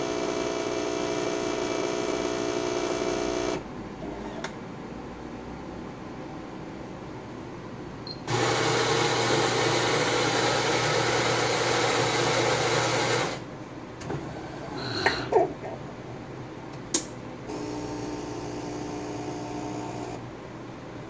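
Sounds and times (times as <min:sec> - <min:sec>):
coffee grinder grinding beans: 0:08.3 - 0:13.4
machine hum: 0:17.5 - 0:20.3.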